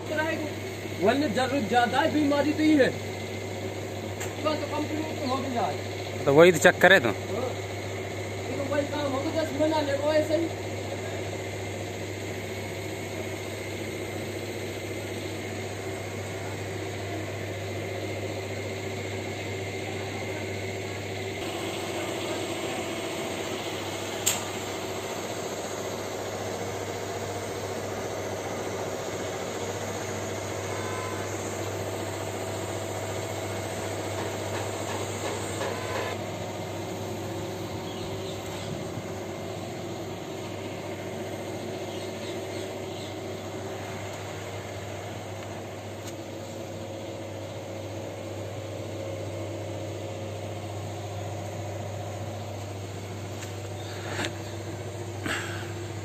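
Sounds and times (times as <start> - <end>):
low mechanical hum: 0.0 - 56.0
sharp click: 24.2 - 24.5.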